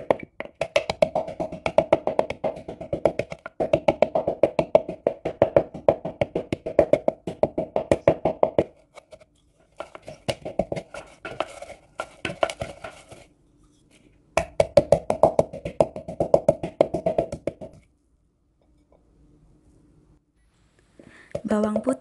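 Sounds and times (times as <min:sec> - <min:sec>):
wooden pestle pounding in bowl: 0:00.0 - 0:08.8, 0:09.8 - 0:13.3, 0:14.4 - 0:17.9.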